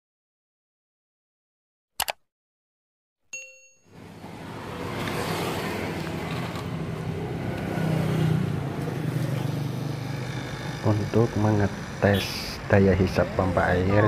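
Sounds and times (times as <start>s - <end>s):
electric water pump running: 9.8s - 12.7s.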